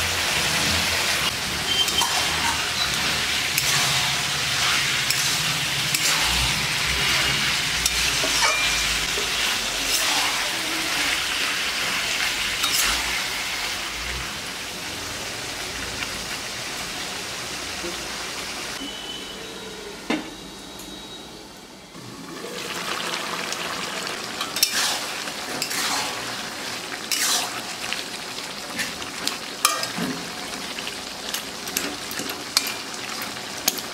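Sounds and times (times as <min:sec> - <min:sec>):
chicken sizzling in a pan: 0:00.0 - 0:18.8, 0:22.0 - 0:33.9
spatula scraping a pan: 0:01.5 - 0:10.5, 0:24.4 - 0:26.4, 0:27.0 - 0:27.8.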